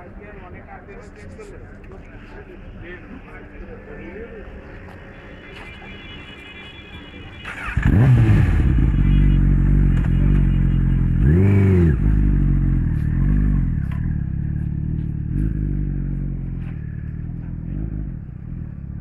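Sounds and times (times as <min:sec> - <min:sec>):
motorcycle engine throttle blips: 0:07.4 - 0:18.4.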